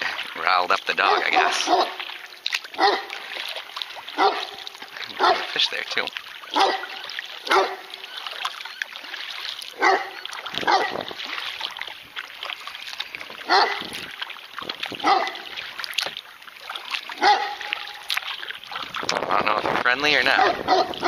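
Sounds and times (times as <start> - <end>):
kayak paddle splashing: 0.0 - 21.0
dog barking: 1.0 - 2.0, 2.8 - 3.2, 4.2 - 5.5, 6.5 - 7.9, 9.8 - 11.0, 13.4 - 13.9, 15.0 - 15.5, 17.2 - 17.8, 20.3 - 21.0.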